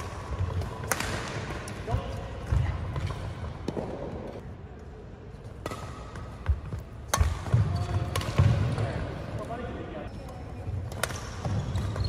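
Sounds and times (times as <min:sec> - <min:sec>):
rackets striking shuttlecock: 0:00.0 - 0:04.4, 0:05.5 - 0:08.8, 0:10.9 - 0:12.0.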